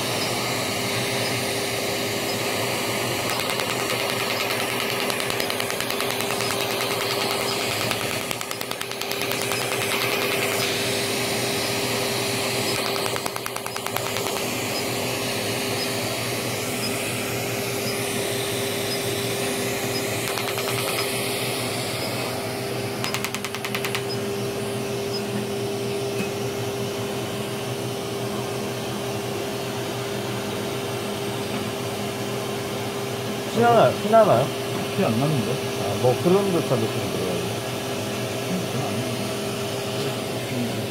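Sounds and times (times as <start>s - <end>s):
laser machine whirring: 0.0s - 26.1s
constant tone: 2.2s - 15.2s
rapid clicking: 3.2s - 10.8s, 12.7s - 14.6s, 20.2s - 21.2s, 23.0s - 24.2s.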